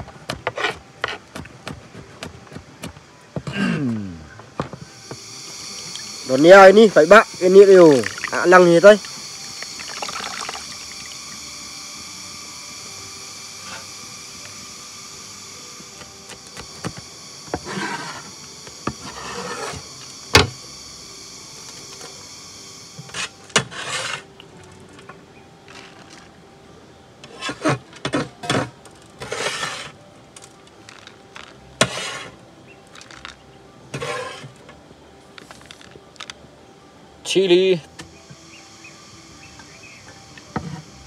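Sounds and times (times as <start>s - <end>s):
high-pitched drone: 4.0s - 27.1s, 35.7s - 41.0s
scrapes on steel plate: 19.0s - 19.8s, 23.1s - 24.3s, 29.2s - 30.0s, 31.8s - 32.4s, 33.9s - 34.6s.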